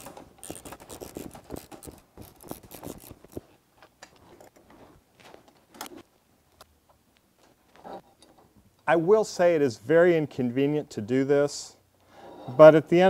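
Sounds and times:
metal parts clicking and scraping: 0.0s - 3.4s.

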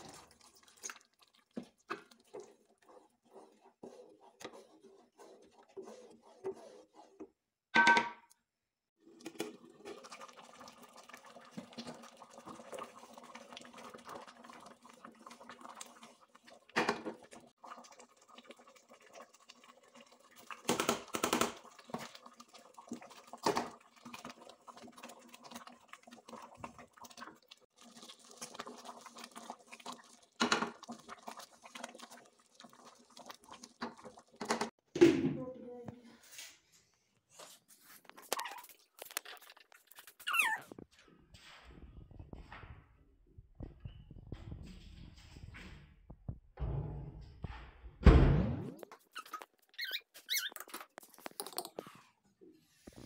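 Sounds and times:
wooden spatula stirring metal pot: 0.0s - 7.7s, 9.0s - 20.6s, 21.6s - 34.8s.

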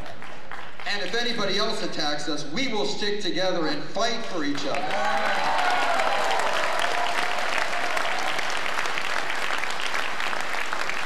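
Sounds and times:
audience applauding: 0.0s - 1.5s, 4.5s - 11.0s.

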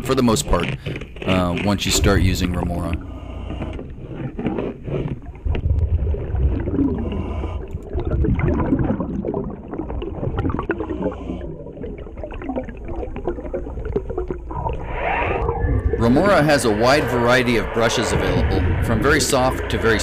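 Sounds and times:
wire brush scraping hull: 0.0s - 7.6s, 14.8s - 20.0s
underwater bubbling and gurgling: 0.0s - 20.0s.

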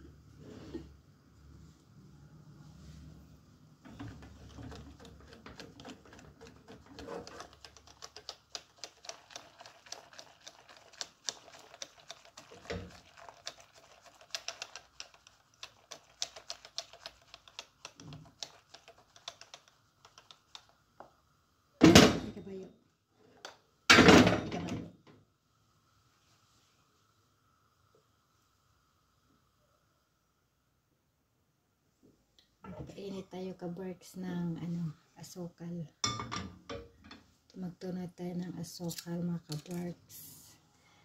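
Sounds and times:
whisk clicking against saucepan: 3.9s - 20.8s.

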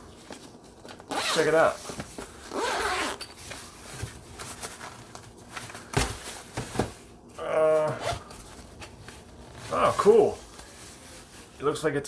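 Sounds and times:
man humming hmm: 7.4s - 8.0s.

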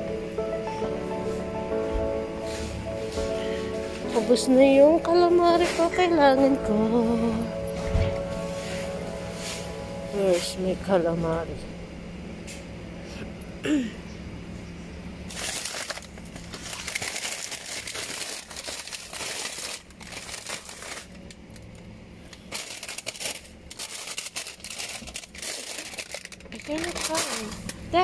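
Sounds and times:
plastic packets crinkling: 15.3s - 28.0s.

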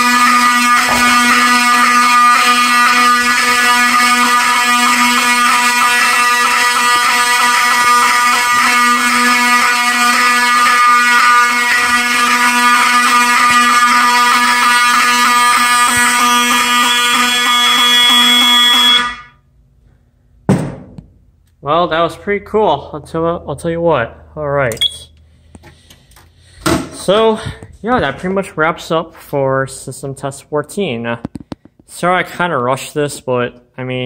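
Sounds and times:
fire alarm horns buzzing: 0.0s - 19.5s, 24.7s - 29.2s.

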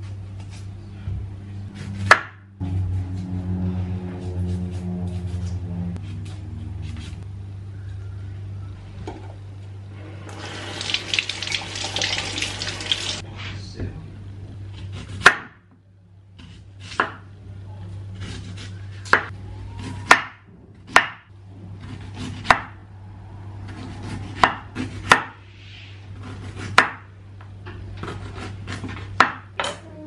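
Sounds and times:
steady low hum: 0.0s - 19.8s
knife chopping on cutting board: 1.7s - 2.5s, 14.8s - 15.6s, 16.4s - 17.3s, 18.2s - 22.8s, 23.7s - 25.4s, 26.2s - 27.1s, 28.0s - 29.6s.

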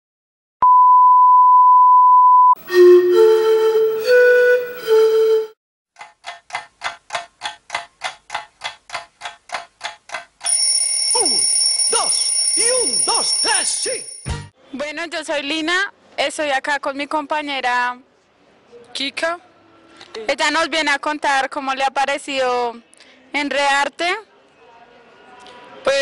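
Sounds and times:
steady test tone: 0.6s - 5.5s
electronic musical notes: 2.6s - 5.6s.

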